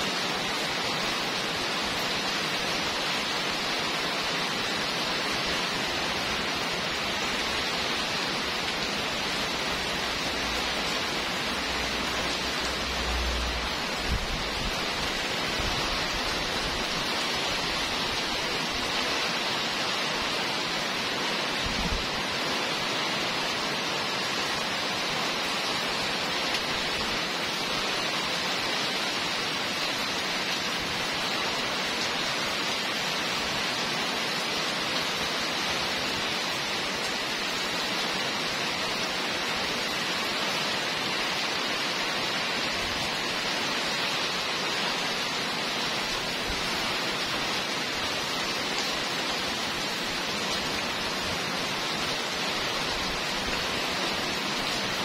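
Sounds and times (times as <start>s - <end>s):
heavy rain on wet street: 0.0s - 55.0s.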